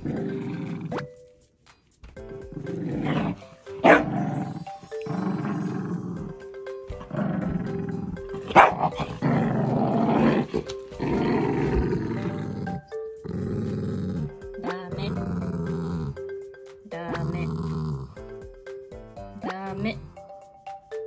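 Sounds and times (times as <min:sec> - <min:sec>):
dog growling: 0:00.0 - 0:01.1, 0:02.5 - 0:16.2, 0:17.1 - 0:18.2
dog barking: 0:03.8 - 0:04.2, 0:08.5 - 0:09.0.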